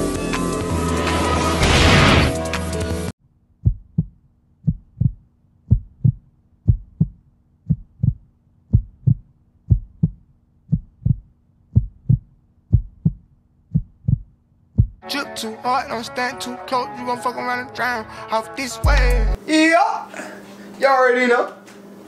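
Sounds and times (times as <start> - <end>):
heartbeat thumps: 3.6 - 15.0.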